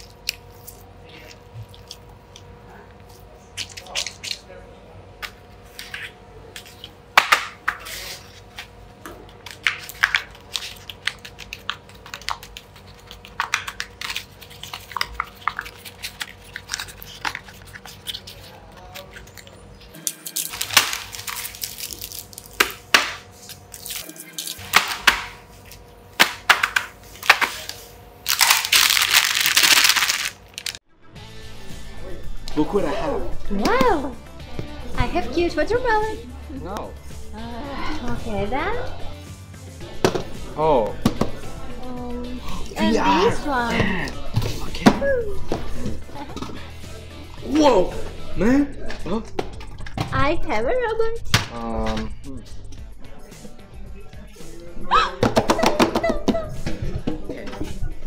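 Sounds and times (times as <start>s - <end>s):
crinkling: 28.3s - 30.8s.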